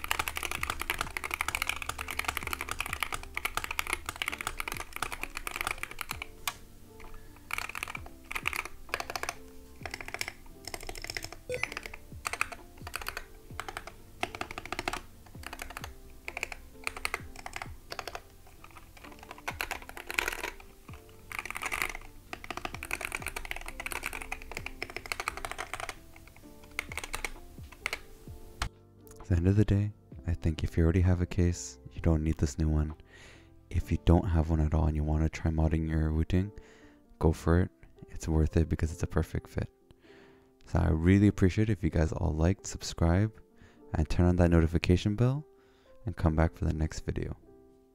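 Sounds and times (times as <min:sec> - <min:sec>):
keyboard keystroke clacks: 0:00.0 - 0:29.2
faint background music: 0:00.0 - 0:47.9.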